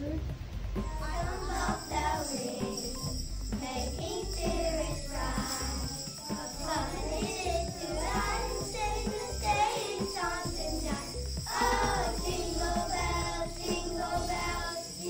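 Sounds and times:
children singing: 0:00.8 - 0:15.0
jingle bells shaken: 0:00.8 - 0:15.0.

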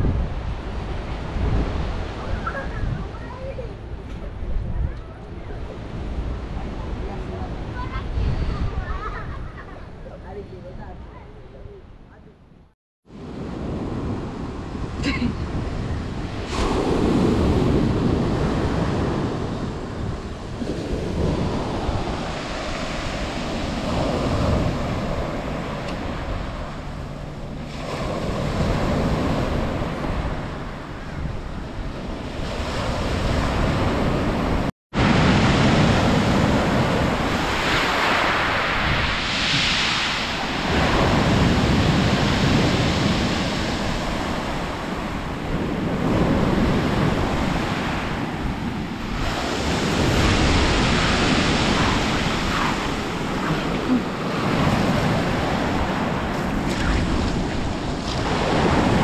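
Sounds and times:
wind gusting on microphone: 0:00.0 - 0:59.0.

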